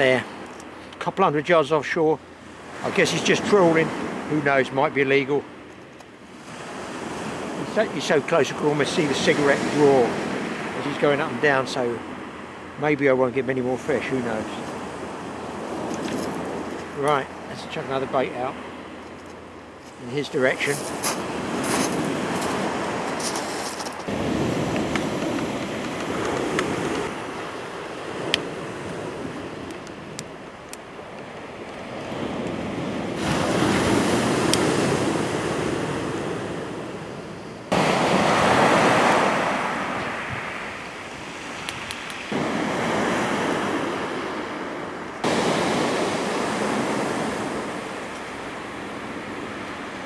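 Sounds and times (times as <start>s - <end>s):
surf washing on shingle beach: 0.0s - 50.0s
wind on microphone: 20.6s - 30.2s, 31.3s - 48.1s.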